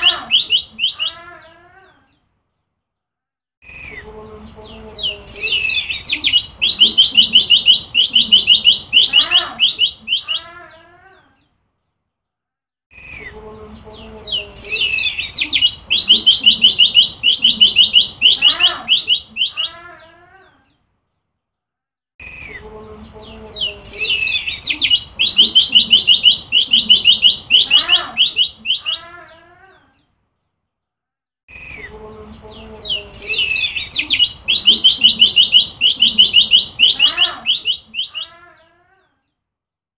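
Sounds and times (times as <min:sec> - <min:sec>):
bird singing rapid chirps: 0:00.0 - 0:01.2, 0:03.7 - 0:10.5, 0:14.0 - 0:19.8, 0:22.3 - 0:29.1, 0:31.5 - 0:38.4.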